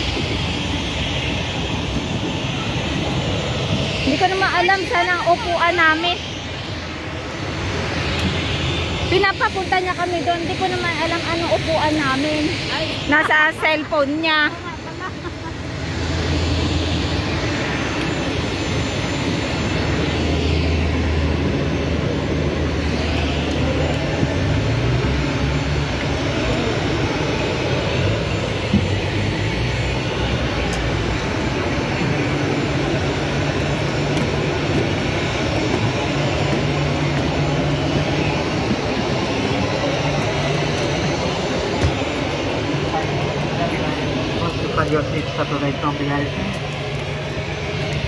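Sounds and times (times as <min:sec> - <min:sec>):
jet aircraft hum and hiss: 0:00.0 - 0:48.0.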